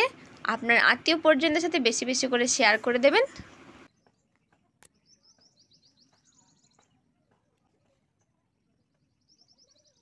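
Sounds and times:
faint bird twittering: 0:03.3 - 0:10.0.

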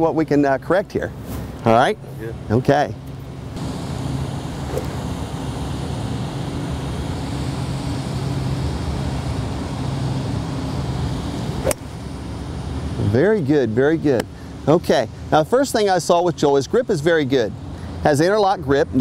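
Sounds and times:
low background hum: 0:00.0 - 0:19.0
golf club striking ball: 0:04.7 - 0:05.0, 0:11.6 - 0:11.9.

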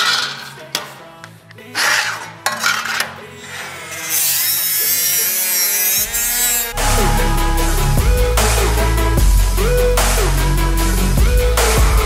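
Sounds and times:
die grinder grinding steel: 0:01.7 - 0:09.2
background music with beat: 0:06.0 - 0:12.0.

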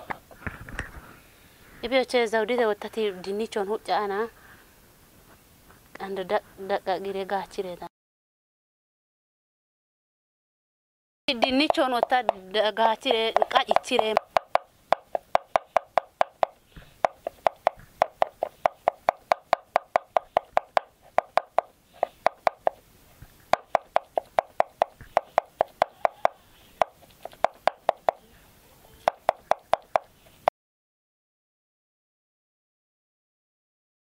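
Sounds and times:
knife chopping on wooden board: 0:11.4 - 0:12.4, 0:13.3 - 0:22.8, 0:23.5 - 0:28.2, 0:29.1 - 0:30.1.

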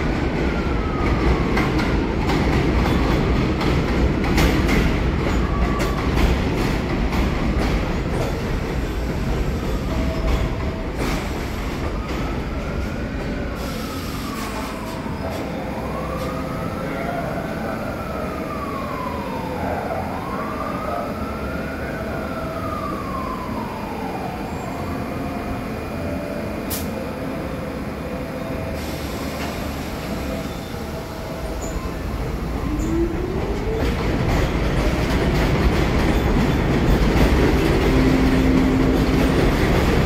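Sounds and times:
subway train rumbling past: 0:00.0 - 0:40.0
siren wailing: 0:13.9 - 0:26.5.

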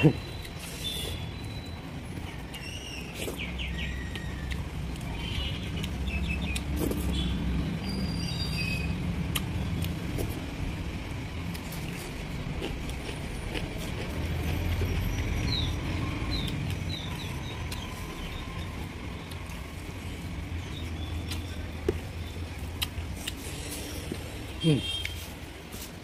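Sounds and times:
chewing: 0:11.5 - 0:15.0, 0:21.2 - 0:24.2.

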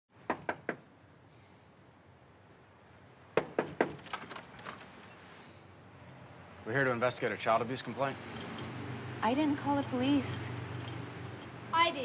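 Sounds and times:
knocks on a door: 0:03.4 - 0:04.0.

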